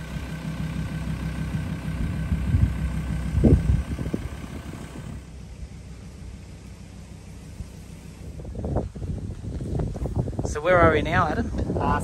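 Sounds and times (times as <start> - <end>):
vehicle engine and road rumble: 0.0 - 12.0
wind on microphone: 2.0 - 4.8, 7.5 - 12.0.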